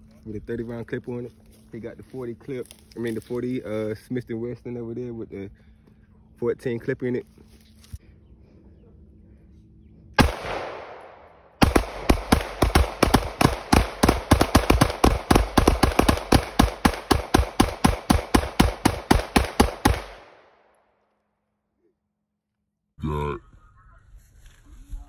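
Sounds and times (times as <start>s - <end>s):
pistol gunshots: 10.2s - 20.6s.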